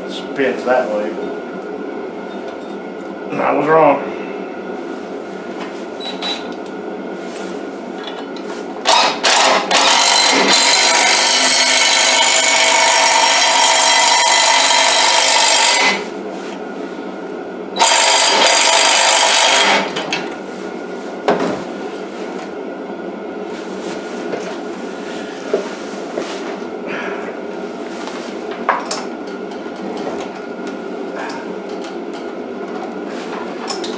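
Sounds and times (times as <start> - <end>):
impact driver running: 8.8 - 16.0, 17.8 - 20.0.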